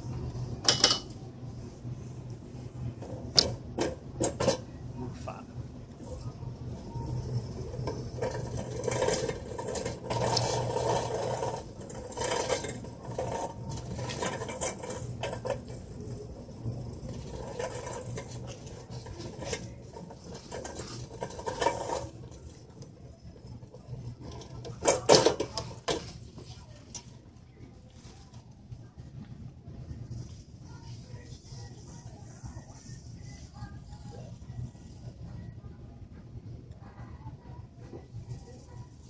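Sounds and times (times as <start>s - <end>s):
shopping cart rattling: 6.1s - 27.1s, 30.0s - 35.3s.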